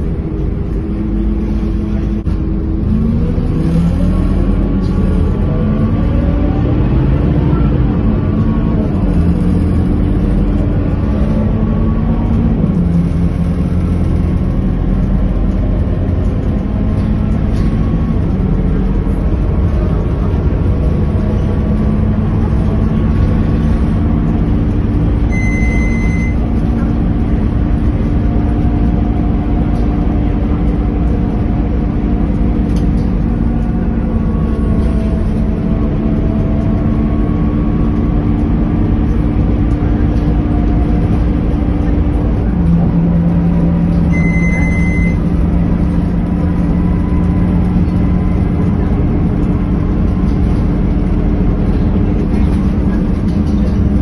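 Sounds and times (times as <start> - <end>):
bus engine rumble and hum: 0.0 - 54.0
short high beep: 25.3 - 26.4, 44.1 - 45.2.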